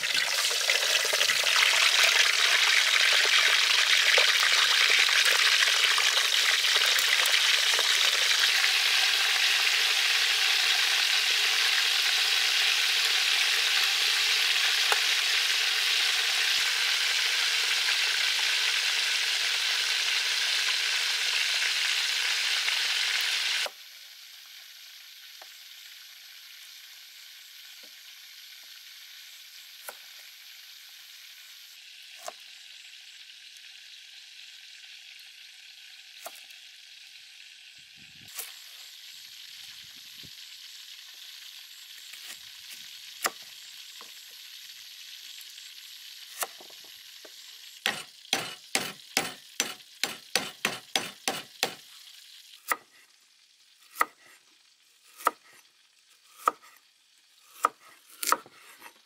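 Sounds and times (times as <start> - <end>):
knife chopping on wooden board: 47.9 - 51.8.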